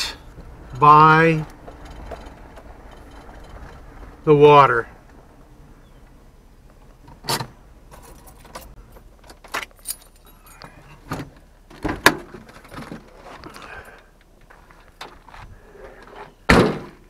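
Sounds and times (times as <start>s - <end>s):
metallic jingles and clicks: 0.3s - 3.9s, 9.6s - 11.0s.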